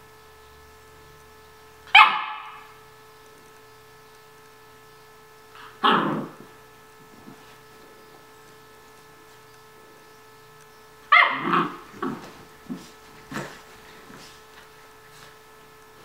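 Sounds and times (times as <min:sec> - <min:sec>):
puppy barking: 0:01.9 - 0:02.7, 0:05.8 - 0:06.4, 0:11.1 - 0:12.2.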